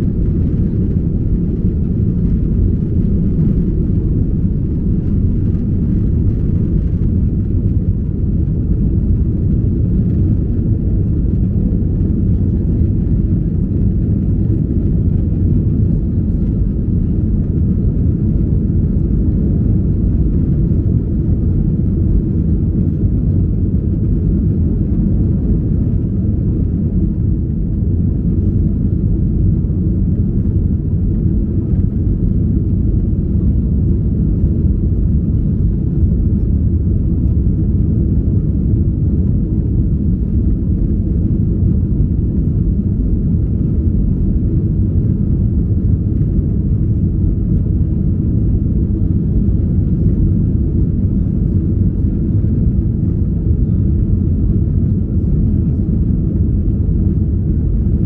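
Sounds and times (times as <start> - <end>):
airplane cabin engine rumble: 0.0 - 58.0.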